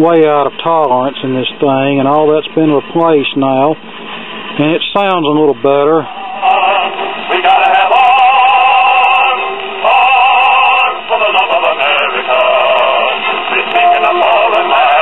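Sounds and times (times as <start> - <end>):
old record of a band playing: 6.1 - 15.0
vocal group singing with vibrato: 6.1 - 15.0.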